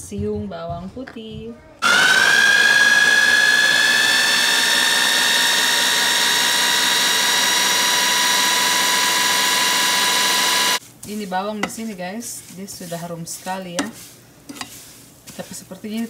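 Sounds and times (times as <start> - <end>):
blender motor whine: 1.8 - 10.8.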